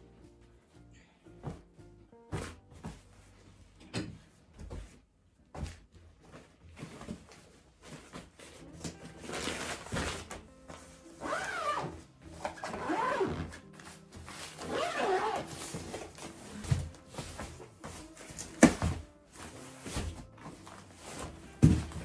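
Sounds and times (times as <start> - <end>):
soft background music: 0.0 - 22.0
zipper rasping: 11.2 - 13.6, 14.5 - 15.9
fabric rustling: 12.8 - 22.0.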